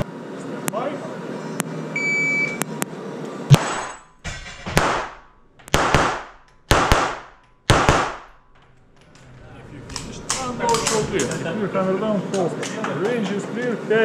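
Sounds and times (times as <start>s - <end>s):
pistol shots echoing indoors: 4.7s - 8.6s.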